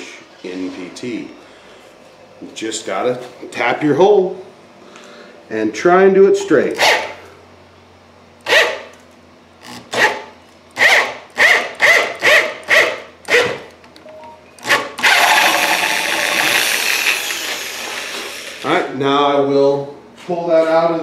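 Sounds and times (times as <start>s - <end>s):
power drill whirring: 14.6s - 18.8s.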